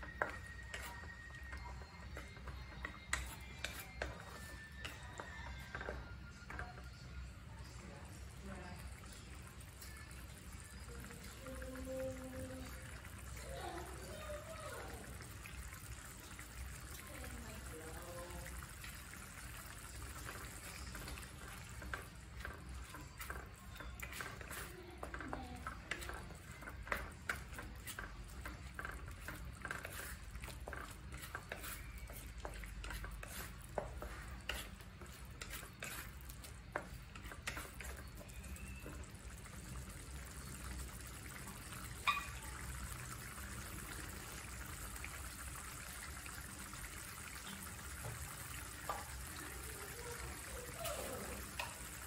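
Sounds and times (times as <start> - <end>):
wet stirring of thick sauce: 0.0 - 52.0
spoon knocking against pan: 42.0 - 42.4.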